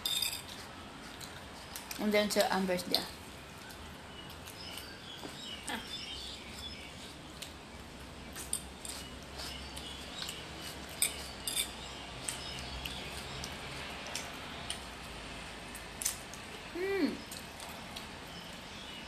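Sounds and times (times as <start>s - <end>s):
fork clinking against a plate: 8.4s - 13.0s.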